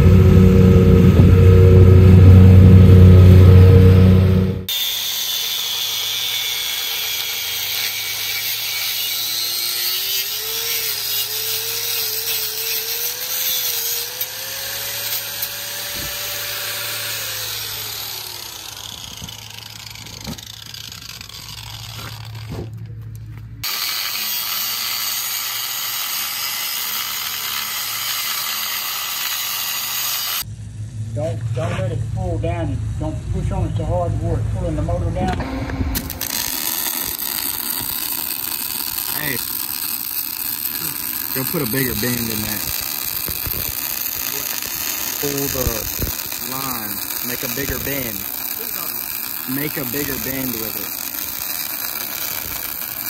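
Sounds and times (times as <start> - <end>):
power tool cutting steel: 0.0 - 22.8, 23.6 - 30.5, 35.3 - 53.0.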